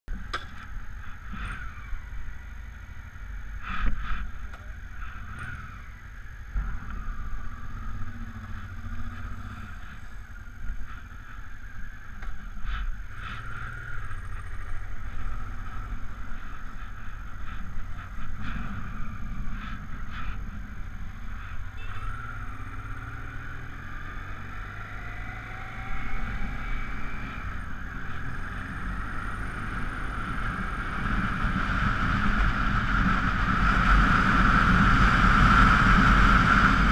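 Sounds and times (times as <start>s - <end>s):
motorcycle engine accelerating: 0.1s - 36.9s.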